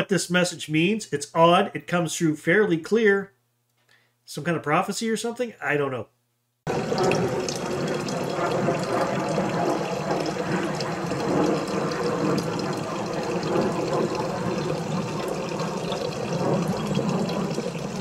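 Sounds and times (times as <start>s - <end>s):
water trickling into metal pot: 6.7s - 18.0s.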